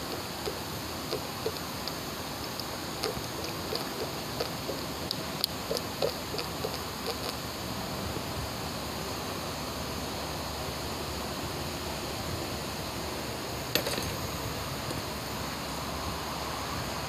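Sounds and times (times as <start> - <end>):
fluid pouring into a funnel: 0.0 - 7.4
steady hiss: 0.0 - 17.0.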